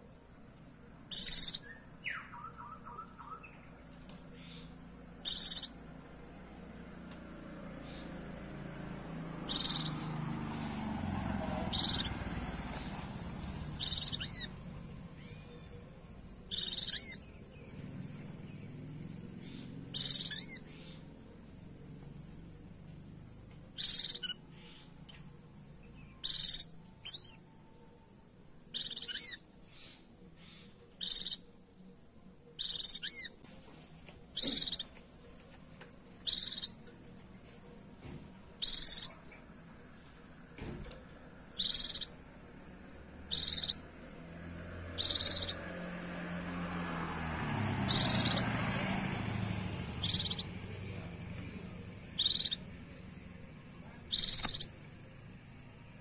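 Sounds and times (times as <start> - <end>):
bird giving warbled calls: 1.1 - 3.7, 4.3 - 6.3, 9.4 - 10.3, 11.7 - 15.9, 16.5 - 17.3, 19.1 - 21.1, 23.8 - 25.2, 26.2 - 27.4, 28.7 - 31.5, 32.6 - 33.4, 34.3 - 34.9, 36.2 - 36.9, 38.6 - 39.4, 40.8 - 42.2, 43.2 - 44.0, 44.9 - 45.7, 47.8 - 48.6, 49.6 - 50.6, 51.7 - 55.0.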